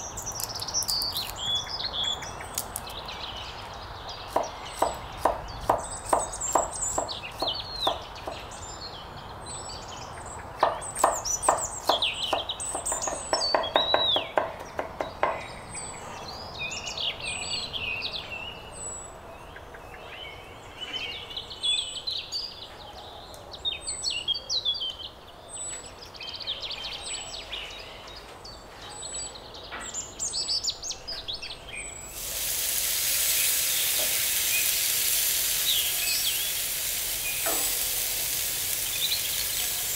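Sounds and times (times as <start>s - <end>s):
small birds chirping: 0.0s - 39.9s
cleaver chopping on wooden board: 4.3s - 8.5s, 10.6s - 15.5s
steak sizzling on grill: 32.1s - 39.9s.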